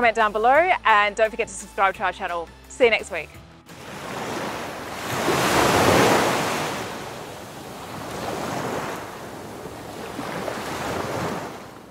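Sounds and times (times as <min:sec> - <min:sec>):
surf and rushing water: 0:03.7 - 0:11.9.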